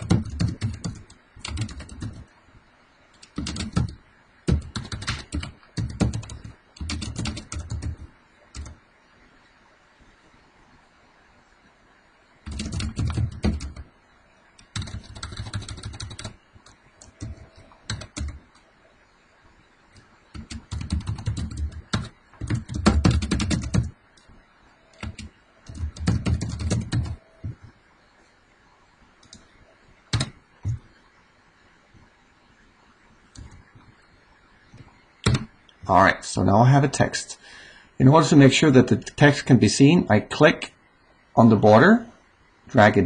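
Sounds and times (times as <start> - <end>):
computer keyboard typing: 0.0 - 2.3, 3.1 - 8.8, 12.4 - 13.9, 14.6 - 18.6, 19.9 - 24.3, 24.9 - 27.6, 30.1 - 30.8, 33.3 - 33.7, 35.2 - 35.5.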